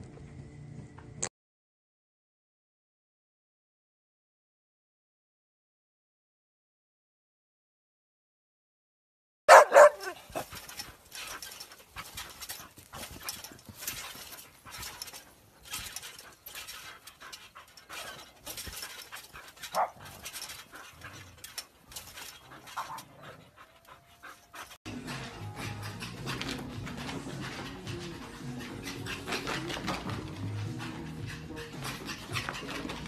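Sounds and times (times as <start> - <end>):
dog panting: 9.5 - 33.0.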